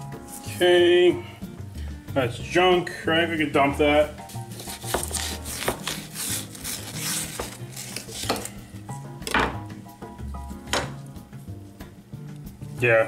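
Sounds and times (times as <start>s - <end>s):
background music: 0.0s - 13.0s
knife scraping on cutting board: 4.2s - 8.6s.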